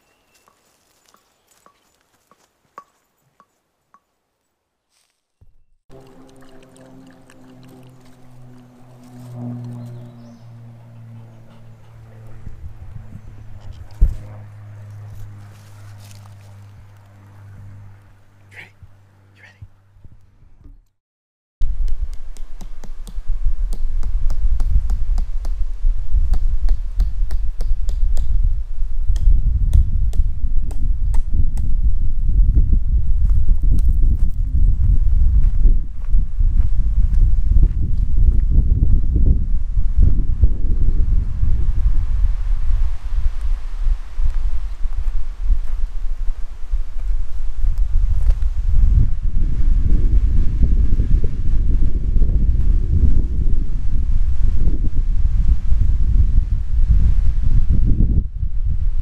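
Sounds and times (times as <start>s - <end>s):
footsteps on leafy dirt trail: 0.0s - 3.3s, 4.9s - 10.3s, 13.6s - 17.4s, 44.3s - 47.4s
wind buffeting microphone: 5.9s - 16.9s, 23.0s - 59.0s.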